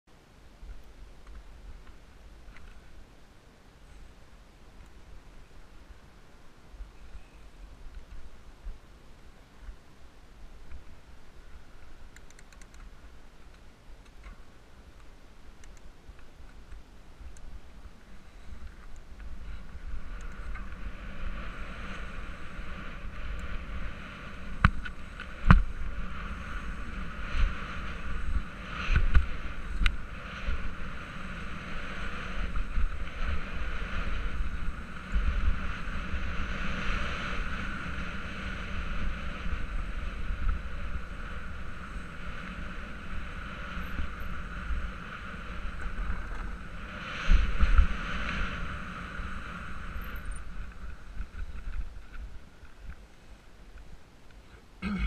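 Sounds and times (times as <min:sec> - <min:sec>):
wind rushing over microphone: 0:17.2 - 0:53.0
bike tyres and frame rattling: 0:17.5 - 0:53.9.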